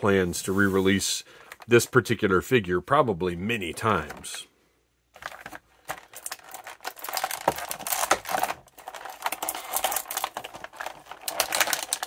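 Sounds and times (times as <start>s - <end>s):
plastic tray crinkling: 5.2s - 12.0s.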